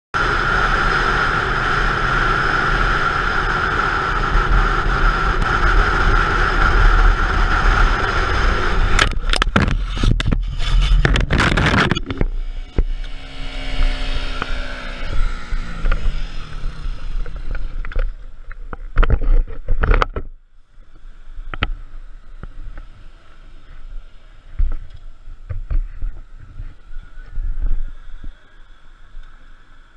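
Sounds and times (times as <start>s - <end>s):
wind rushing: 0.2s - 18.2s
motorcycle engine: 0.2s - 29.9s.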